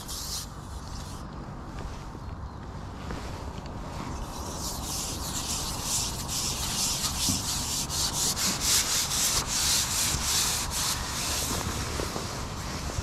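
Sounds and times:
fishing pole rubbing through hands: 0.0s - 1.2s, 3.9s - 13.0s.

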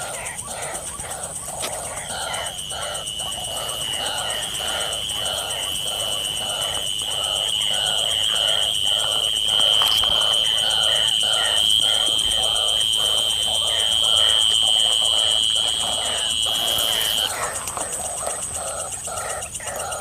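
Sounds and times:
high insect buzz: 1.7s - 17.4s.

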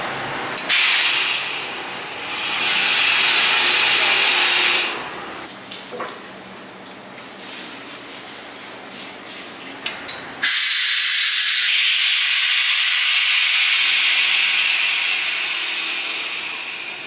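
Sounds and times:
compressed air hissing: 0.7s - 5.4s, 10.4s - 17.0s.

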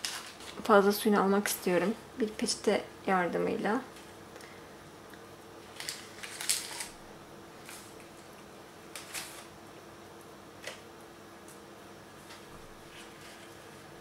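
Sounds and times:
paper rustling: 0.0s - 0.7s, 5.6s - 7.0s, 12.2s - 13.8s
faint steady hum: 0.0s - 14.0s.

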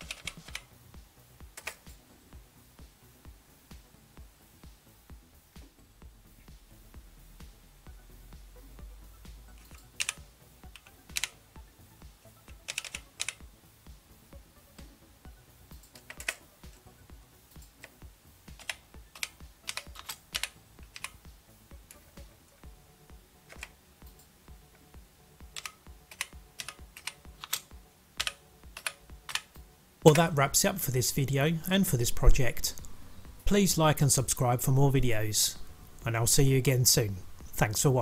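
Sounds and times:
keyboard keys clicking: 0.0s - 0.7s, 9.6s - 11.4s, 12.5s - 13.4s, 15.8s - 16.4s, 17.6s - 21.2s, 23.5s - 24.2s, 25.5s - 29.6s.

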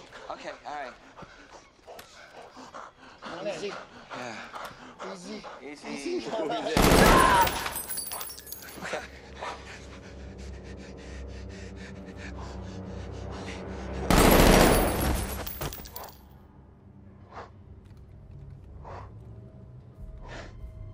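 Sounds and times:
ape panting: 0.0s - 6.3s, 7.7s - 15.8s.

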